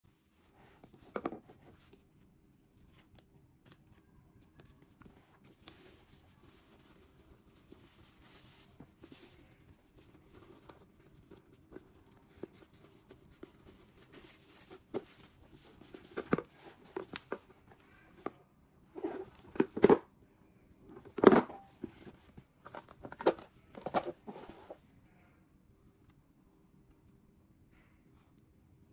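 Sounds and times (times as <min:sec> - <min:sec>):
ribbon rustling: 0:02.8 - 0:18.1.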